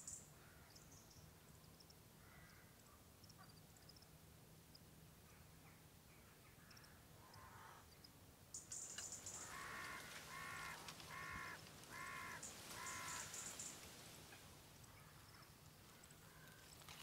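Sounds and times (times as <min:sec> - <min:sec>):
faint high hiss: 0:00.0 - 0:17.0
crow cawing: 0:02.2 - 0:02.7, 0:06.6 - 0:07.8, 0:09.1 - 0:13.9, 0:15.9 - 0:16.7.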